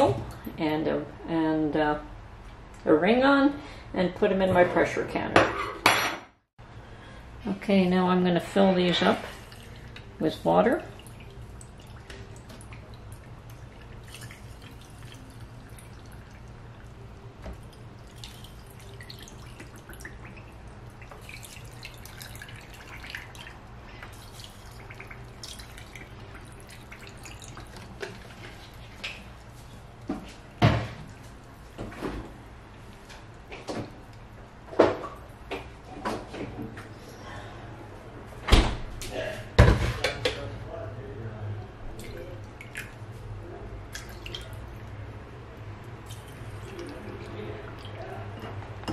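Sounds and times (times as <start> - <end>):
low steady hum: 0.0 - 38.8, 39.7 - 48.9
water pouring into jars: 9.1 - 17.0, 17.6 - 28.8, 46.0 - 48.4.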